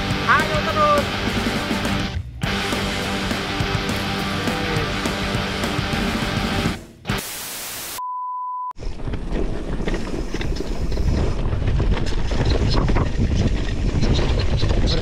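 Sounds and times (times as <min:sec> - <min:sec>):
music: 0:00.0 - 0:07.2
white-noise static: 0:07.1 - 0:08.0
high beep: 0:08.0 - 0:08.8
mountain bike rattling: 0:08.8 - 0:15.0
wind rushing over microphone: 0:08.8 - 0:15.0.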